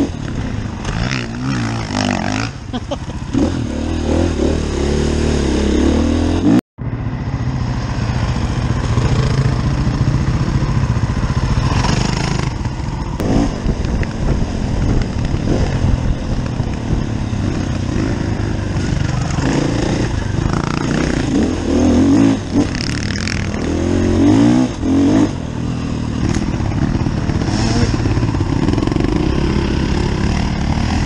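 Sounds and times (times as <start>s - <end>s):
dirt bike engine running: 6.8s - 31.0s.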